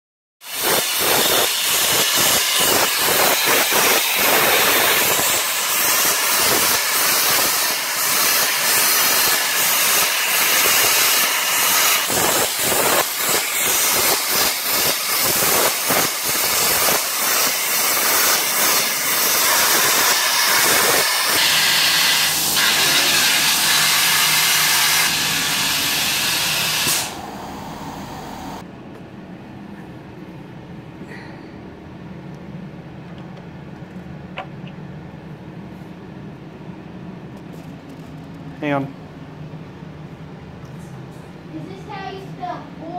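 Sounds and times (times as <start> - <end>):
plasma torch cutting steel: 0.4 - 28.6.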